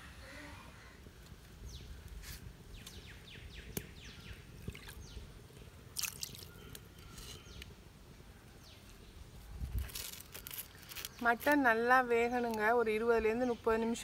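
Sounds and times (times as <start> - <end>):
pot bubbling and dripping: 3.6 - 7.0.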